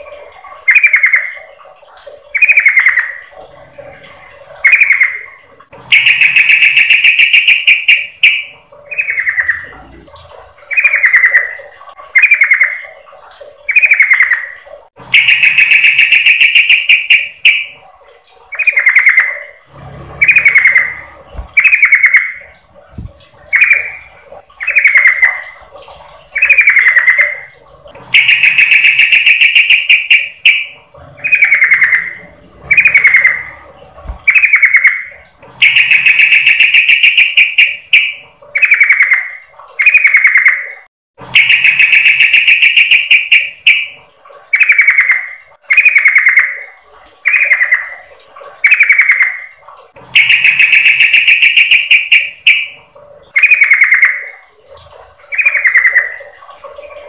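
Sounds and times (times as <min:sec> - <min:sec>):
bird chirping: 0:04.6 - 0:12.9, 0:13.7 - 0:17.8, 0:18.5 - 0:25.6, 0:26.3 - 0:40.7, 0:41.4 - 0:43.9, 0:50.2 - 0:52.8, 0:53.4 - 0:54.3, 0:55.2 - 0:56.3.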